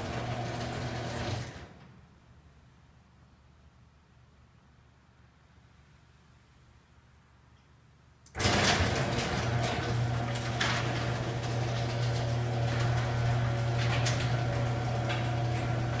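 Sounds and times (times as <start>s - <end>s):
garage door opener humming: 0.0s - 1.9s, 8.3s - 16.0s
garage door rattling and clicking: 0.0s - 2.0s, 8.3s - 16.0s.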